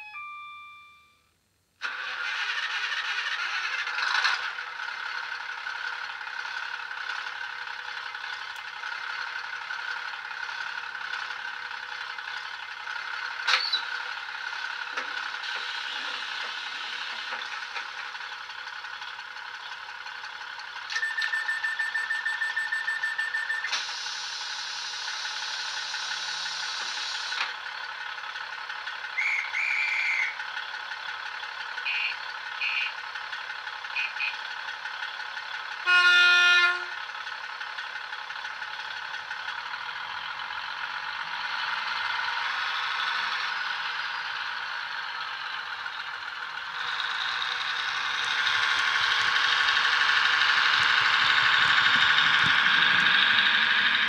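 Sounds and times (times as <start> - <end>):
steady beep: 0.0 - 1.3, 21.0 - 23.7
model train diesel engine idling: 1.2 - 54.0.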